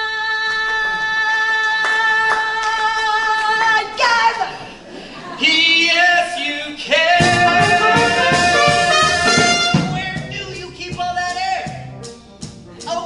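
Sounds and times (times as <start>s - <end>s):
show-tune duet singing: 5.3s - 11.8s
musical accompaniment: 7.0s - 13.0s.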